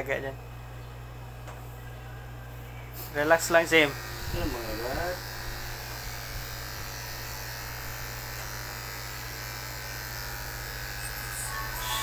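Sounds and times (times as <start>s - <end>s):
electric clippers buzzing: 3.0s - 12.0s.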